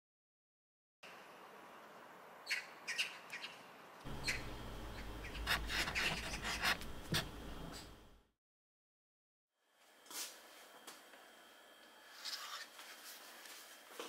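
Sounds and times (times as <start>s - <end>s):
birds chirping: 2.4s - 6.6s.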